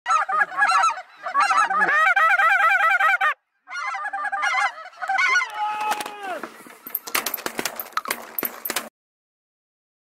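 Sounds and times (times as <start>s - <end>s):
geese honking: 0.1s - 6.9s.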